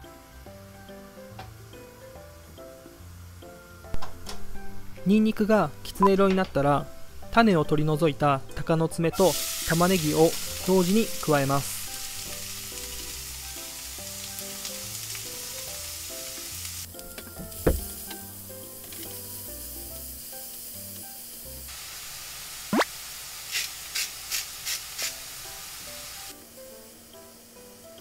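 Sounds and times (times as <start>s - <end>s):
onions sizzling in oil: 9.2s - 28.0s
salt shaker shakes: 23.5s - 25.4s.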